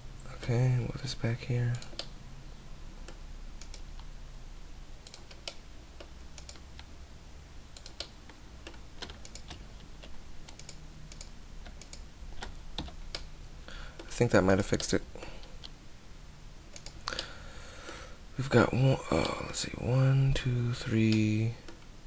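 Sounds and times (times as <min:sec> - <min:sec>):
low steady hum: 0:00.0 - 0:22.0
keyboard and mouse clicks: 0:01.7 - 0:02.1, 0:03.0 - 0:04.1, 0:05.0 - 0:06.9, 0:07.7 - 0:13.3, 0:14.0 - 0:15.8, 0:16.7 - 0:17.3.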